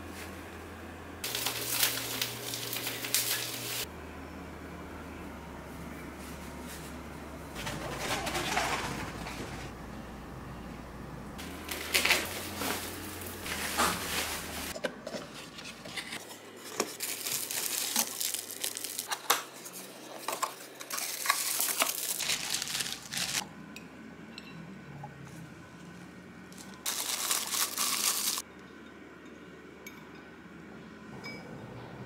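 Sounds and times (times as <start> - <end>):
bubble wrap crinkling: 1.3 - 3.9, 11.4 - 14.8, 16.6 - 19.2, 20.7 - 23.4, 26.8 - 28.4.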